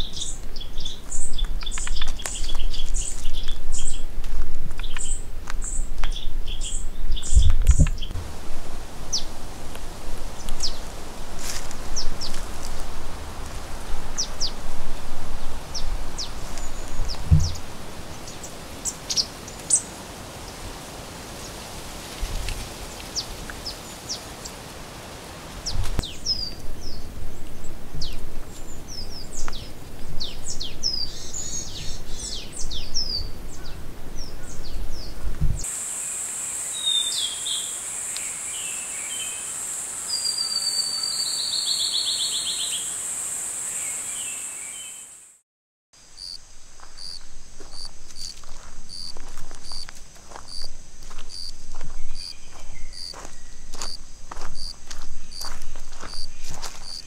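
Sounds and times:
small birds chirping: 0:00.0 - 0:04.1, 0:04.8 - 0:08.2, 0:09.0 - 0:09.4, 0:10.2 - 0:12.8, 0:13.8 - 0:19.9, 0:25.6 - 0:42.9, 0:46.2 - 0:57.0
footsteps on leaves: 0:00.0 - 0:06.2, 0:08.1 - 0:30.4, 0:46.6 - 0:57.0
high insect buzz: 0:35.6 - 0:45.4, 0:46.0 - 0:57.0
bird trill: 0:40.1 - 0:42.9
insects chirping in pulse: 0:46.0 - 0:57.0.

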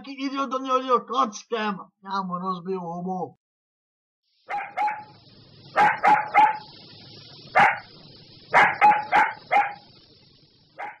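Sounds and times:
faint hiss: 0:04.3 - 0:11.0
dog barking: 0:04.5 - 0:06.7, 0:07.5 - 0:07.9, 0:08.5 - 0:09.9, 0:10.8 - 0:11.0.

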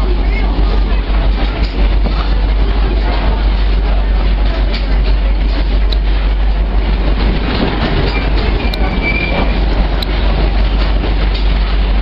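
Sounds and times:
train wheels rumbling on rail: 0:00.0 - 0:12.0
high wheel squeal: 0:08.1 - 0:09.6.

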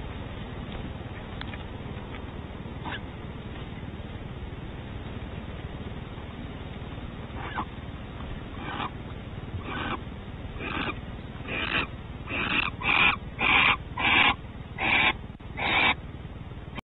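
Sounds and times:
owls hissing calls: 0:02.8 - 0:03.0, 0:07.4 - 0:07.7, 0:08.5 - 0:09.0, 0:09.6 - 0:10.0, 0:10.6 - 0:16.0.

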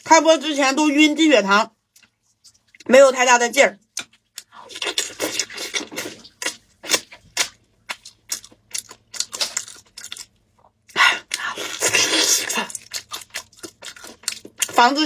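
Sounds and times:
wet chewing and tearing meat: 0:03.9 - 0:15.0.

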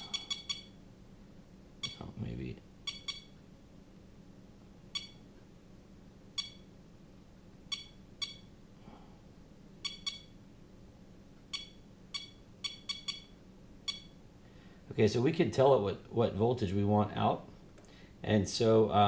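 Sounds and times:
charger beeping: 0:00.0 - 0:00.8, 0:02.8 - 0:03.4, 0:04.9 - 0:05.3, 0:06.3 - 0:06.7, 0:07.7 - 0:08.5, 0:09.8 - 0:10.4, 0:11.5 - 0:14.2.

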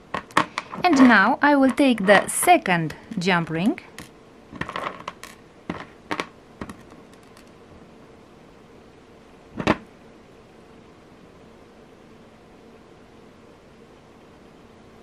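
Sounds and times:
small metal parts clicking: 0:03.9 - 0:07.6.

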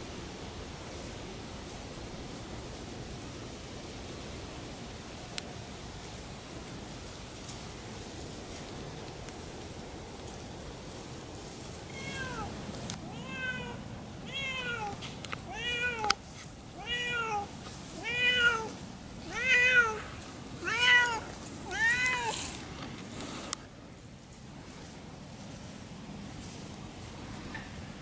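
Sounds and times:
cat meowing: 0:11.9 - 0:12.5, 0:13.1 - 0:16.2, 0:16.8 - 0:22.5.

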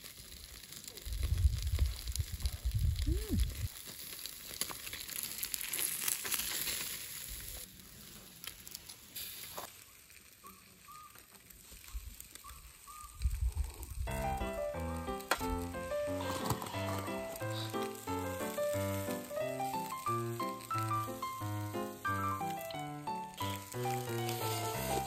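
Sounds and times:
fish sizzling on a grill: 0:00.0 - 0:25.0
background music: 0:14.1 - 0:25.0.

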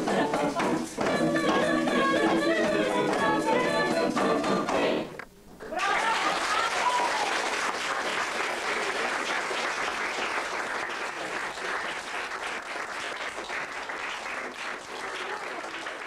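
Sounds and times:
audience applauding: 0:05.7 - 0:16.0.

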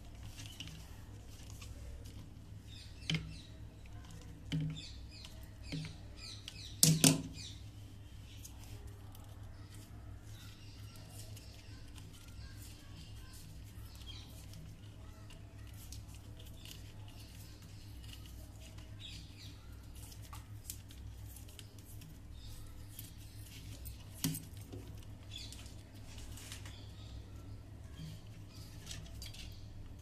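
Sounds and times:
hands twisting electrical wires: 0:00.0 - 0:07.4, 0:08.3 - 0:26.7.

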